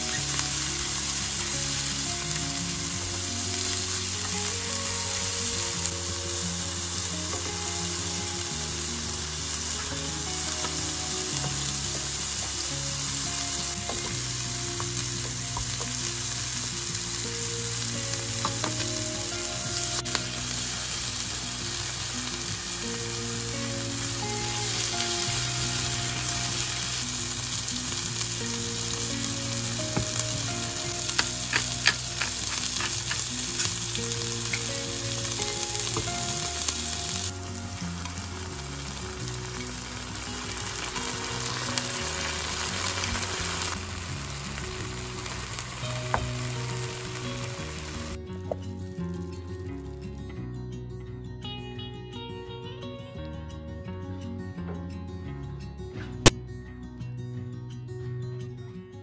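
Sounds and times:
food sizzling in a frying pan: 0.0s - 48.2s.

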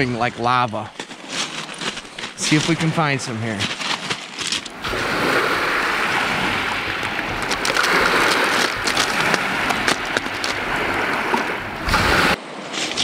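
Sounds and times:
waves washing over cobbles: 0.0s - 13.0s
stones clicking: 3.7s - 4.8s, 6.8s - 11.5s.

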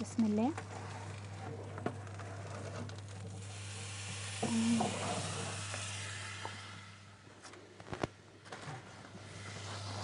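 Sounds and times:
food sizzling: 3.3s - 7.0s.

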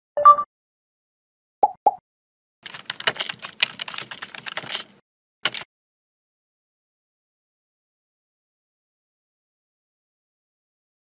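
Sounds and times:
keyboard typing clicks: 2.6s - 5.7s.

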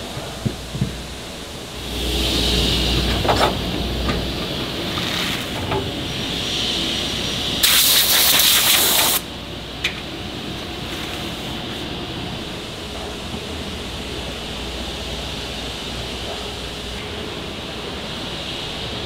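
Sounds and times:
woodworking machinery hiss and hum: 0.0s - 19.0s
loud burst of hissing: 1.6s - 9.3s.

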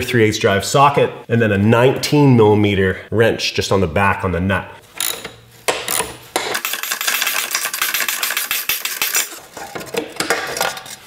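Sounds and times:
socket ratchet clicking: 5.0s - 9.4s.

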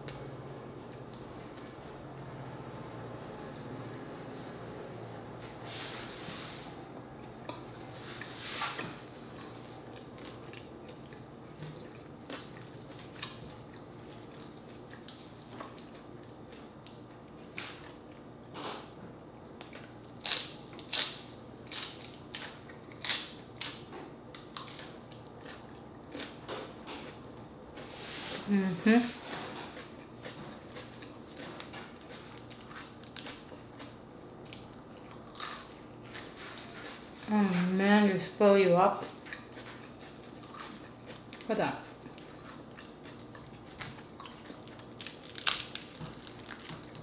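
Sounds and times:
chewing crunches: 7.2s - 18.4s, 19.6s - 27.4s, 29.4s - 37.4s, 39.0s - 47.0s.

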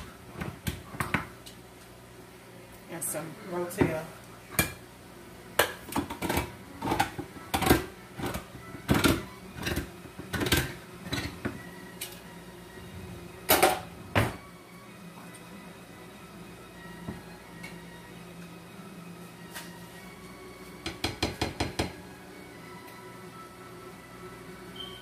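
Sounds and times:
kitchen utensils clattering: 5.6s - 11.4s.

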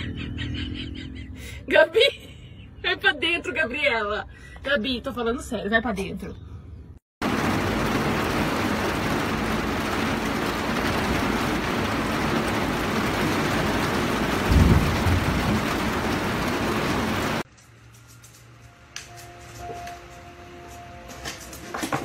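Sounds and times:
heavy rain pouring: 7.2s - 17.5s.

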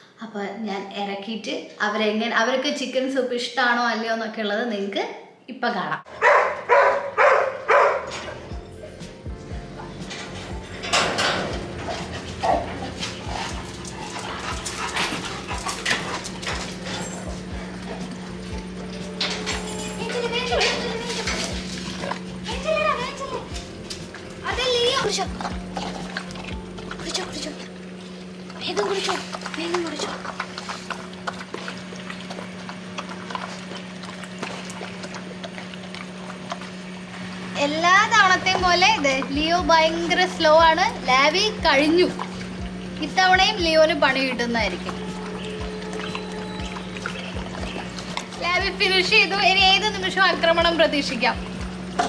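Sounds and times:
dog lapping from metal bowl: 9.9s - 52.0s
dogs whimpering and yipping: 11.6s - 27.7s.

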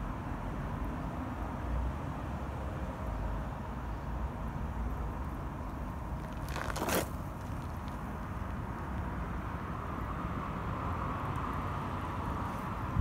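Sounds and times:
wind rumble on microphone: 12.3s - 13.0s.

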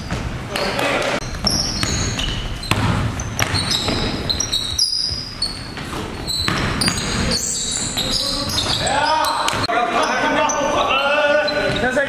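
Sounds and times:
sneaker squeaks: 0.0s - 12.0s
basketball dribbling on hardwood: 1.2s - 7.3s.

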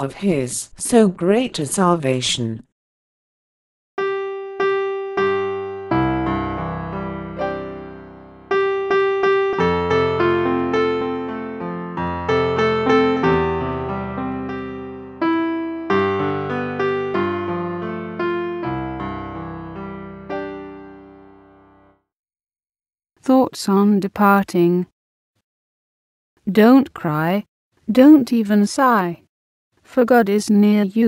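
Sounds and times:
slow solo piano piece: 4.0s - 21.9s.

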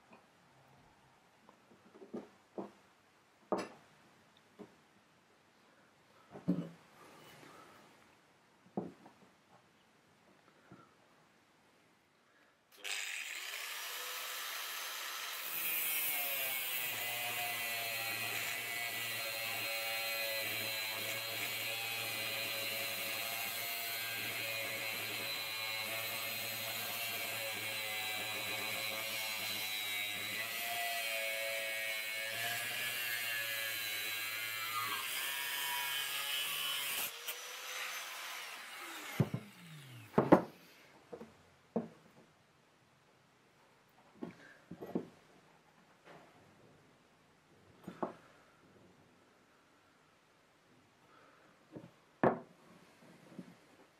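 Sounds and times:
angle grinder cutting metal: 12.8s - 40.2s.

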